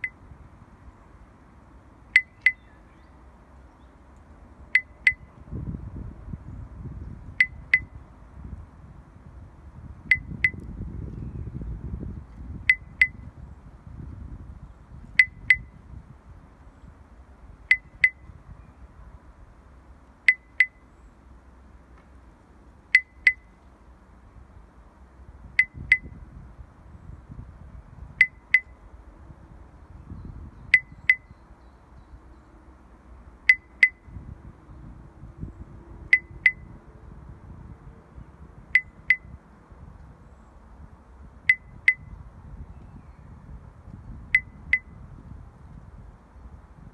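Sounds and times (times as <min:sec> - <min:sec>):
high clinking ticks: 0:00.0 - 0:00.2, 0:02.1 - 0:02.7, 0:04.1 - 0:05.3, 0:07.4 - 0:08.0, 0:10.1 - 0:10.7, 0:15.1 - 0:15.7, 0:17.7 - 0:18.3, 0:20.2 - 0:20.9, 0:22.9 - 0:23.7, 0:25.6 - 0:26.1, 0:28.2 - 0:28.8, 0:30.7 - 0:31.3, 0:33.4 - 0:34.1, 0:36.0 - 0:36.7, 0:38.7 - 0:39.3, 0:41.4 - 0:42.2, 0:44.3 - 0:44.9.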